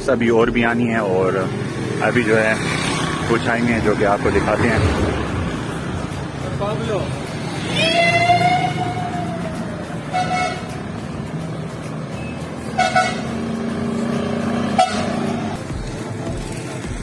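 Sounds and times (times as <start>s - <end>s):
engines humming: 0.0s - 17.0s
car horn toots: 10.1s - 10.8s, 12.7s - 13.4s, 14.7s - 15.2s.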